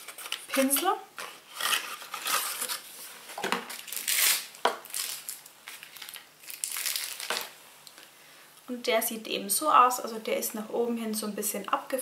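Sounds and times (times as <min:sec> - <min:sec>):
packaging crinkling and rustling: 0:00.0 - 0:07.6.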